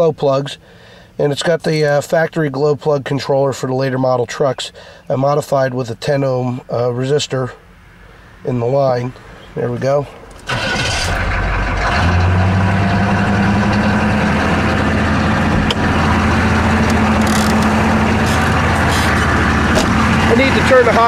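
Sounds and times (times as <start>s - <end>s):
diesel engine cranking and idling: 9.4s - 21.0s.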